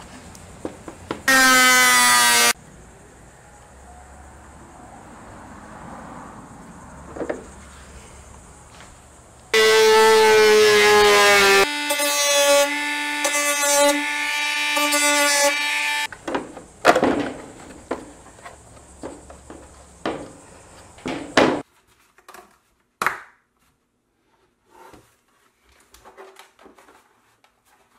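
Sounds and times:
knocks and scrapes: 0:16.2 - 0:22.7.

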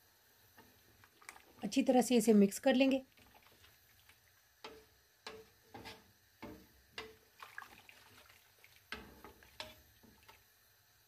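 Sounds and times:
spatula stirring broth in pot: 0:03.0 - 0:10.6.

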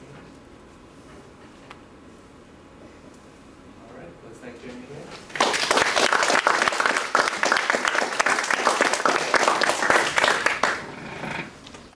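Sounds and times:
audience applauding: 0:05.3 - 0:11.0.

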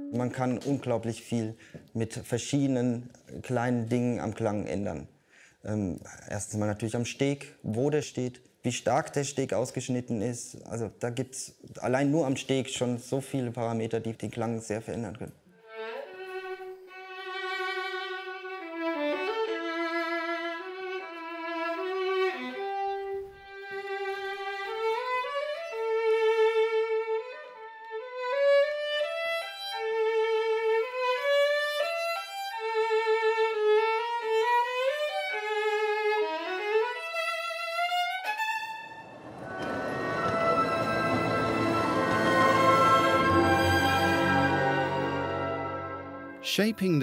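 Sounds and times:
solo violin melody: 0:15.5 - 0:46.4
orchestral music: 0:38.6 - 0:47.0.

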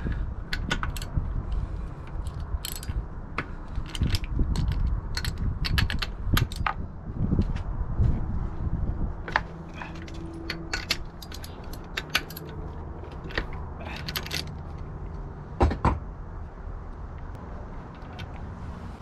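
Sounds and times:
low steady rumble: 0:00.0 - 0:19.0
metal tool clinking on engine: 0:09.8 - 0:14.6.

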